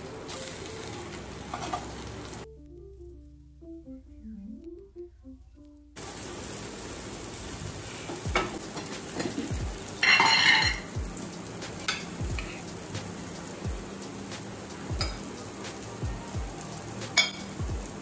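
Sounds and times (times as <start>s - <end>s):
vegetables sizzling in a pan: 0.0s - 2.5s, 6.0s - 18.0s
spatula scraping a pan: 1.5s - 1.9s.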